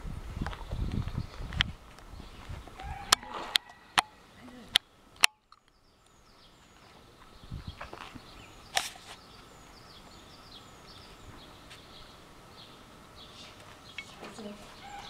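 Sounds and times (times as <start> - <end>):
songbirds chirping: 0.0 - 15.0
sharp click: 3.1 - 5.8.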